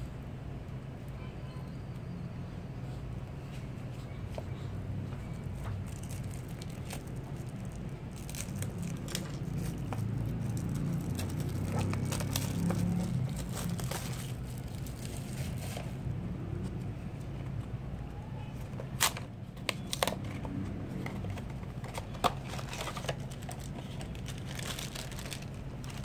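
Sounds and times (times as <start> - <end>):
plastic wrap crinkling and tearing: 5.8 - 16.0, 21.1 - 26.0.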